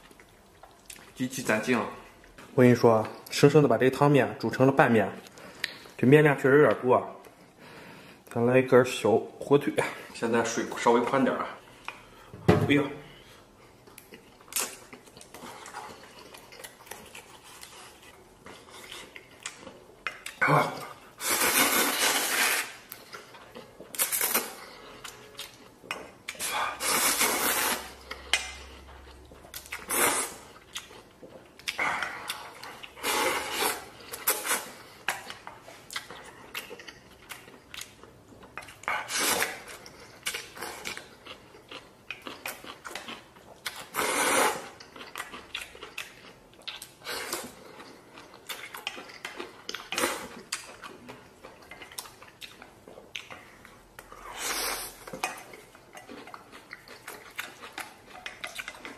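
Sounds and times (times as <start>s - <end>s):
person slurping noodles: 26.4s - 28.0s, 29.8s - 30.5s, 33.0s - 34.7s, 43.9s - 44.8s.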